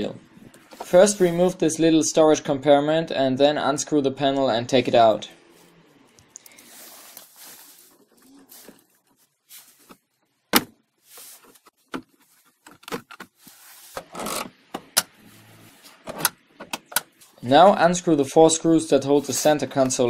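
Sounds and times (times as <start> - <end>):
rustling: 5.4 - 10.3, 11.0 - 14.4.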